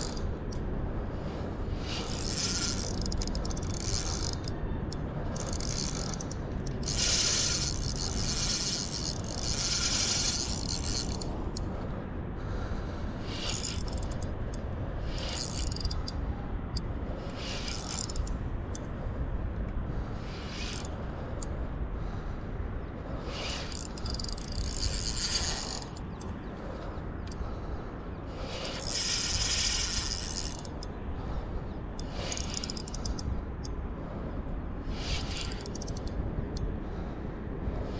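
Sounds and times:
reel handle cranking: 0.0s - 0.6s, 1.8s - 11.6s, 13.3s - 14.3s, 15.1s - 16.2s, 17.3s - 18.3s, 23.3s - 26.3s, 28.4s - 30.9s, 32.0s - 33.2s, 34.9s - 36.1s
fishing reel drag ratcheting: 0.0s - 11.7s, 13.3s - 18.8s, 20.2s - 21.5s, 23.2s - 27.6s, 28.4s - 31.0s, 32.0s - 33.7s, 34.8s - 36.7s.

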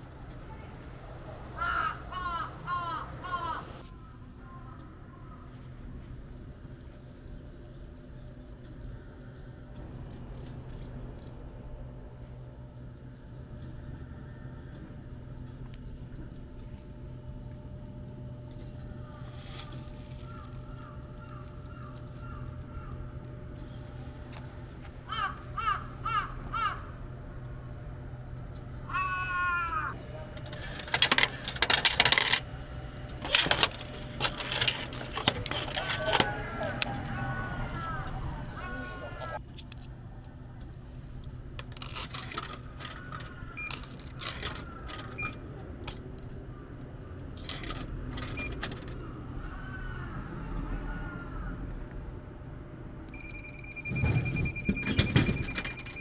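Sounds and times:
steady low hum: 0.0s - 56.0s
crow cawing: 1.6s - 5.5s, 20.3s - 23.0s, 25.0s - 27.0s, 28.9s - 30.0s
coins clattering into vending machine: 30.4s - 32.5s, 33.2s - 38.1s, 41.6s - 46.0s, 47.4s - 48.9s
coins clinking in hand: 33.2s - 38.1s.

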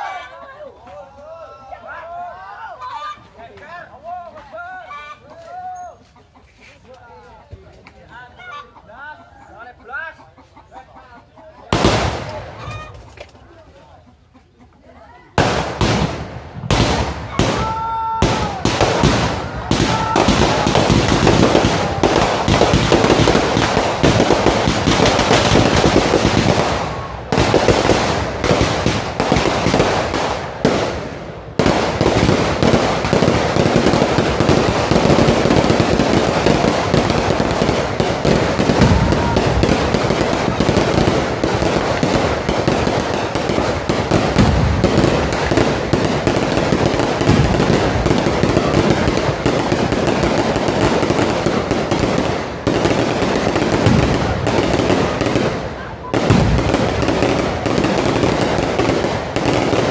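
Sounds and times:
firecrackers crackling: 11.7s - 13.5s, 15.3s - 59.9s.

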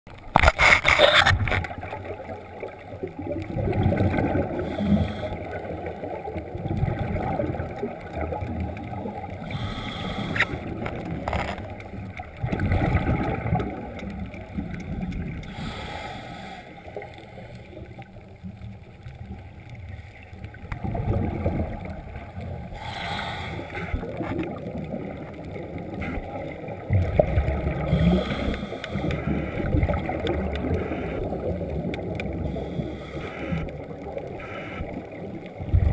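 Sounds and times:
regulator exhale bubbles underwater: 3.0s - 11.2s, 12.4s - 15.9s, 20.6s - 35.9s.

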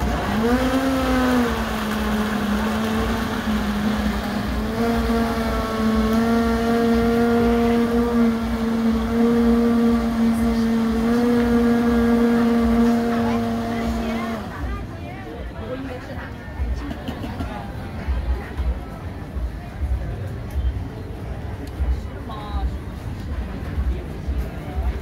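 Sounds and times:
blender motor whining: 0.0s - 14.7s.

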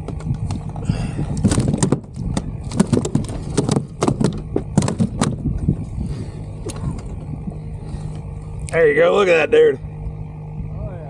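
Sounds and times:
wind on microphone: 0.0s - 8.6s
thumps on plastic kayak: 1.4s - 5.4s.

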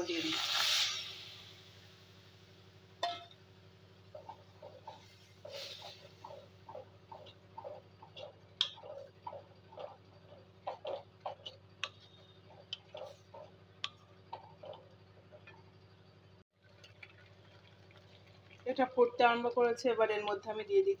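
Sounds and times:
steady low hum: 0.9s - 16.4s.

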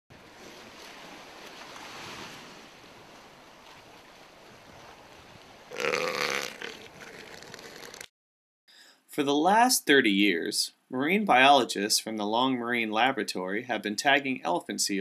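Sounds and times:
elephant seal belching call: 5.7s - 8.0s.

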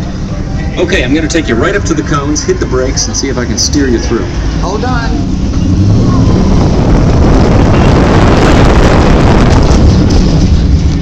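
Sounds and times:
ride vehicle rushing along track: 0.0s - 11.0s
wind buffeting microphone: 1.0s - 11.0s.

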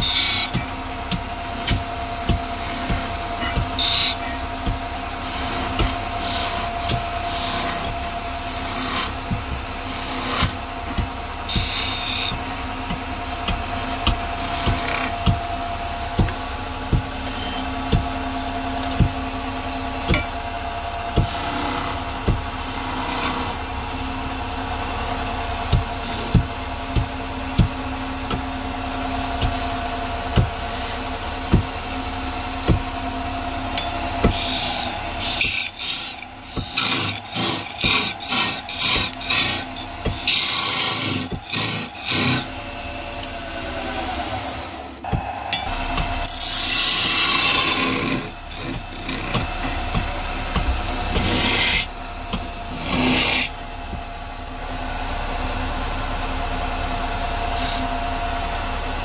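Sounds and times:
rasping strokes on wood: 0.0s - 18.1s, 25.7s - 28.5s, 29.3s - 31.7s, 33.8s - 45.2s, 46.0s - 54.0s
wood lathe humming: 0.0s - 59.0s.

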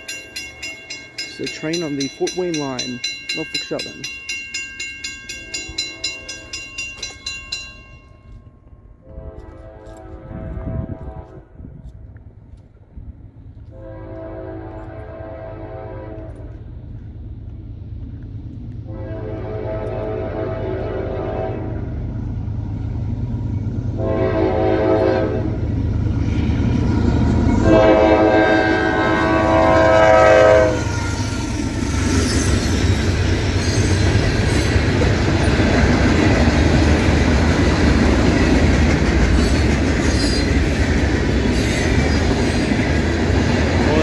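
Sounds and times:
train rumble and wheel clatter: 0.0s - 44.0s
train air horn blasts: 9.0s - 11.7s, 13.7s - 16.6s, 18.8s - 21.9s, 24.0s - 25.6s, 27.6s - 31.6s.

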